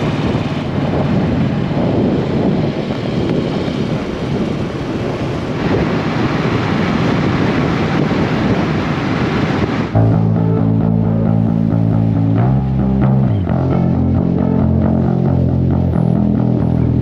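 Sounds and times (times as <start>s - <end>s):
motorcycle engine running: 0.0s - 5.6s, 10.0s - 17.0s
wind rushing over microphone: 0.0s - 17.0s.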